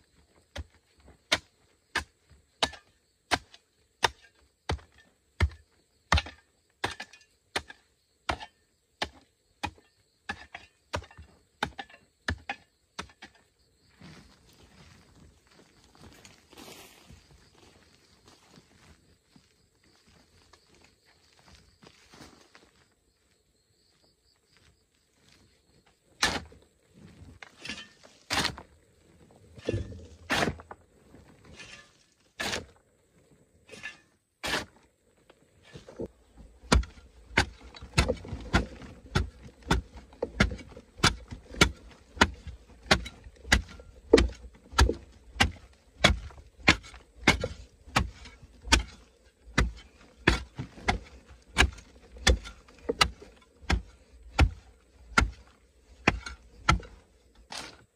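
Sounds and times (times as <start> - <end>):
digging tool striking clay: 0.6 - 13.4, 29.6 - 30.7, 36.6 - 57.9.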